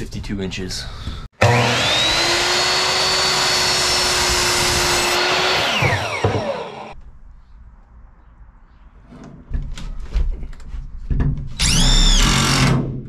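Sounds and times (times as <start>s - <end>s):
miter saw cutting wood: 1.4s - 7.0s, 11.6s - 12.7s.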